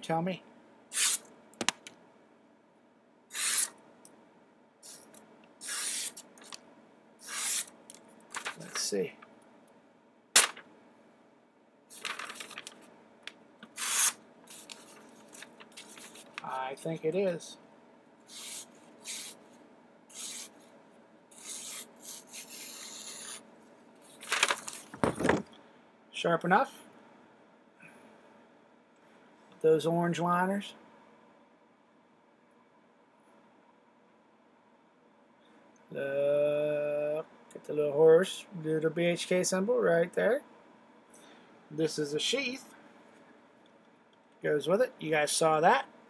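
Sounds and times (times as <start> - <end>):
knife slicing paper: 1.0 - 1.2, 3.3 - 3.7, 5.6 - 6.2, 7.2 - 7.7, 13.7 - 16.4, 18.3 - 19.4, 20.1 - 20.5, 21.3 - 23.4.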